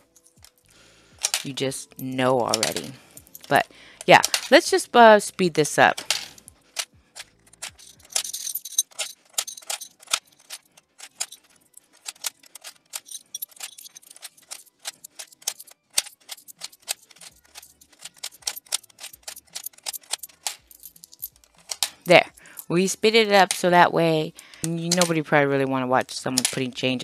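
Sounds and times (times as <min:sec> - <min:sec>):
coins dropping into plastic bank: 0:00.0 - 0:04.8, 0:05.7 - 0:23.8, 0:24.4 - 0:25.4, 0:26.1 - 0:27.0
rattle of coins: 0:01.2 - 0:04.7, 0:05.8 - 0:23.8.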